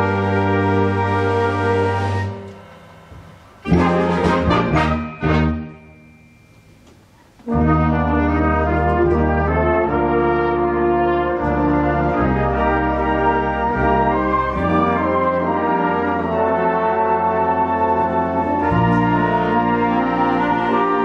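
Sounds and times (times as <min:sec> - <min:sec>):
hall reverberation: 0:00.0 - 0:16.4
concert band brass chords: 0:00.0 - 0:21.0
short band chord: 0:02.2 - 0:09.6.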